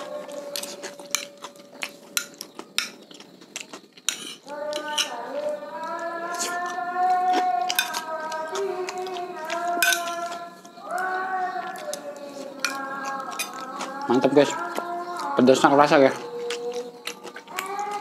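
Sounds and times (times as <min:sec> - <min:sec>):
cutlery clinking on plate: 0:00.5 - 0:03.2, 0:04.1 - 0:05.2, 0:07.6 - 0:08.1, 0:09.8 - 0:10.4, 0:12.6 - 0:13.8.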